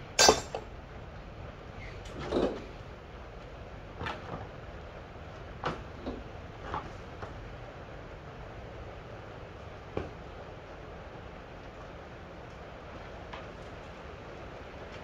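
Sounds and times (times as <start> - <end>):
sharp metallic clank: 0.2 - 0.6.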